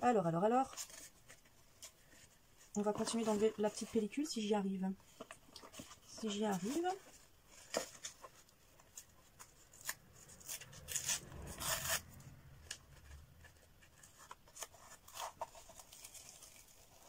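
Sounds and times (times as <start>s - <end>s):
backing paper peeling and rustling: 5.0s - 17.0s.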